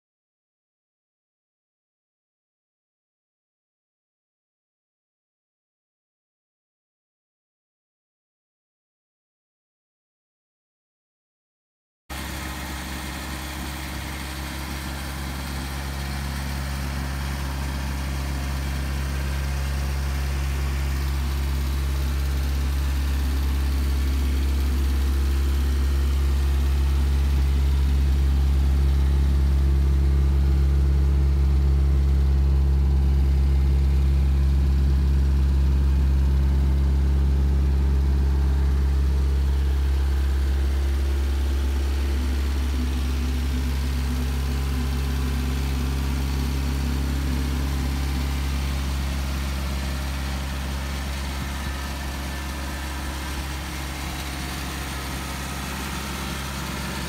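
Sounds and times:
car engine idling: 12.1 - 57.0.

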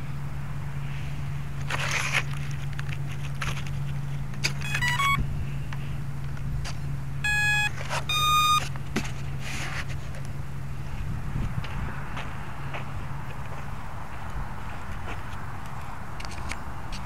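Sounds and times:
steady low hum: 0.0 - 17.0
longer electronic beeps: 4.6 - 5.2, 7.2 - 8.7
short stepped electronic beeps: 4.6 - 5.2, 7.2 - 8.7.

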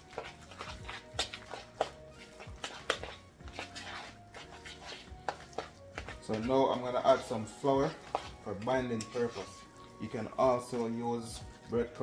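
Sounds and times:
fork scraping plastic bowl: 0.0 - 7.2, 7.9 - 9.9
background music: 0.0 - 12.0.

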